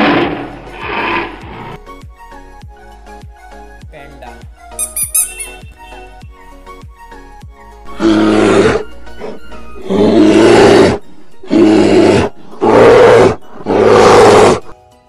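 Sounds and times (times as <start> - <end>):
large animal growling roar: 0.0 - 1.8, 7.9 - 14.7.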